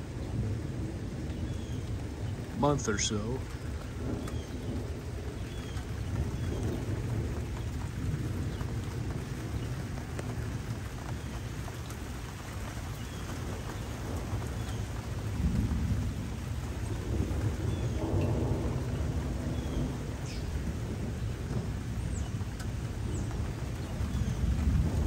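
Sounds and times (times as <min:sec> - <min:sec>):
low rumble of thunder: 0:00.0 - 0:25.0
steady rain: 0:00.0 - 0:25.0.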